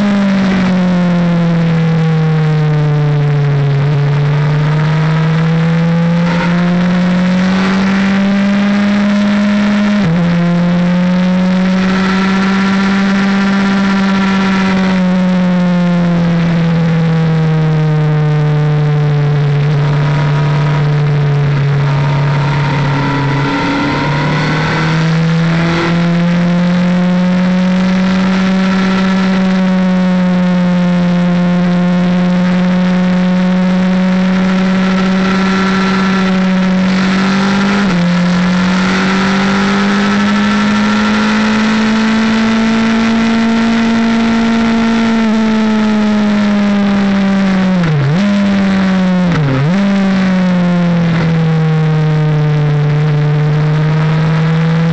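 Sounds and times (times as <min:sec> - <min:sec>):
motorcycle engine at high revs: 0:00.0 - 0:54.9.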